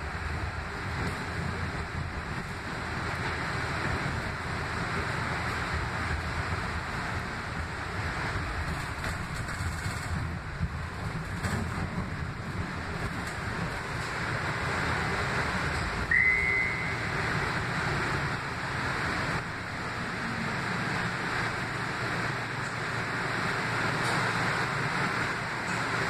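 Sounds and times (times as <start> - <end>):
light rail vehicle running noise: 0.0 - 26.0
brief high squeal: 16.1 - 17.1.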